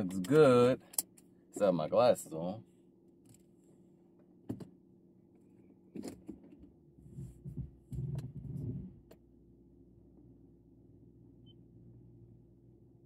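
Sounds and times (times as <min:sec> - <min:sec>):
low rumbling bumps: 0:07.0 - 0:09.1.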